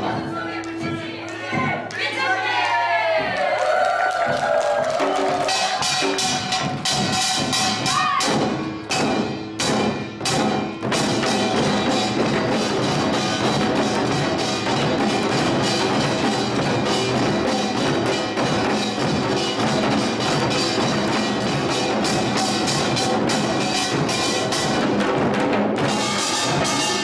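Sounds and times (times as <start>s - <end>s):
drums playing: 0.0s - 27.0s.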